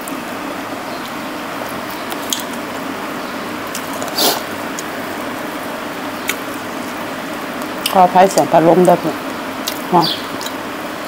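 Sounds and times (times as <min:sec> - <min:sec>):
electric fan humming: 0:00.0 - 0:11.0
wet chewing mouth sounds: 0:03.7 - 0:05.3, 0:09.6 - 0:10.6.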